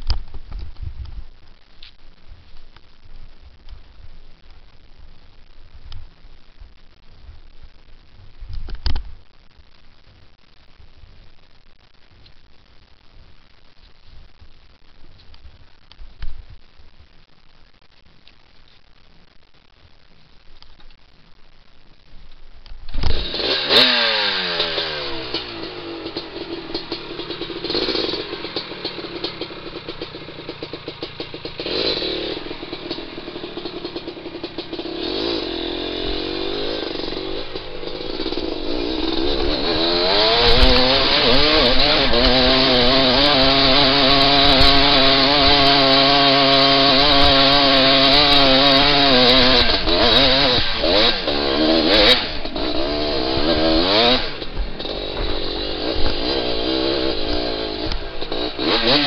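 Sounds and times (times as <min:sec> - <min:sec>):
dirt bike engine revving: 0:23.0 - 0:59.0.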